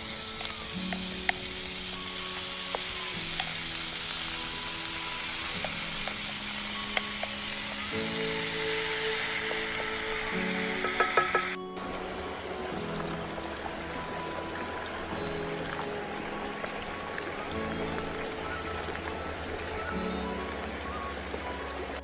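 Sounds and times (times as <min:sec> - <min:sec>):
utensils clicking on pan: 0:00.0 - 0:11.6
food sizzling in skillet: 0:00.0 - 0:21.9
soft background music: 0:00.0 - 0:22.0.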